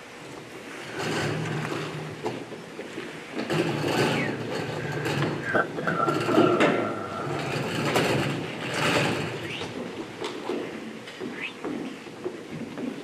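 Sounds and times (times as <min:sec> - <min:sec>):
knocks and clatter: 0:00.9 - 0:13.0
indistinct voices talking: 0:04.1 - 0:08.1.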